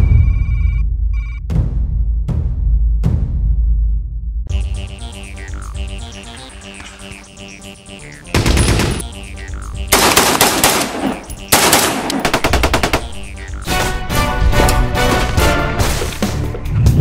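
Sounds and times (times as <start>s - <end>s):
background music: 4.5s - 17.0s
machine-gun fire bursts: 8.3s - 9.1s, 9.9s - 13.2s.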